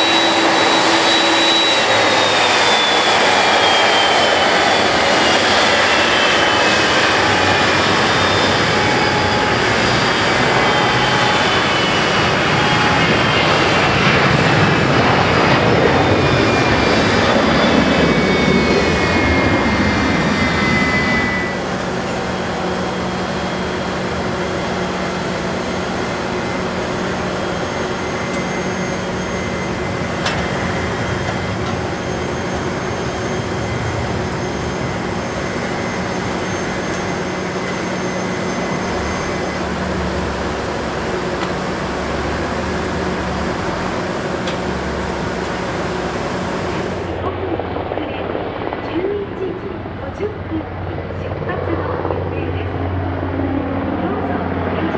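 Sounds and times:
jet engines spooling down: 0.0 - 54.9.

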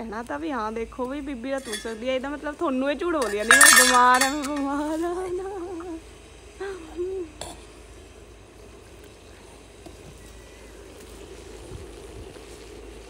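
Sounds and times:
faint steady hiss: 0.0 - 13.0
kitchen utensil clink: 1.6 - 2.3, 3.2 - 4.8
person humming: 6.6 - 7.5.

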